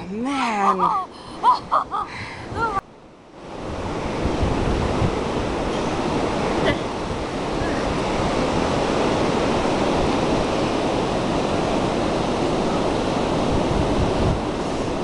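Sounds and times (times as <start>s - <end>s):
ocean surf on a beach: 0.0s - 15.0s
wind buffeting microphone: 1.0s - 15.0s.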